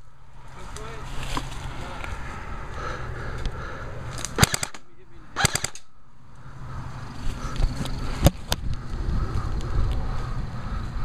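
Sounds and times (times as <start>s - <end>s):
airsoft gun shots: 4.3s - 4.8s, 5.4s - 5.9s.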